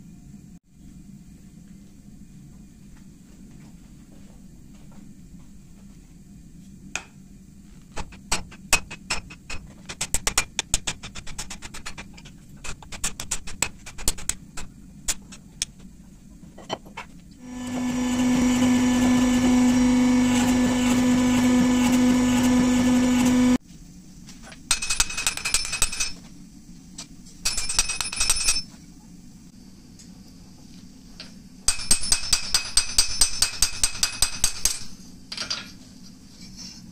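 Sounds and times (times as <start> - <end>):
loud steady machine hum: 17.4 - 23.6.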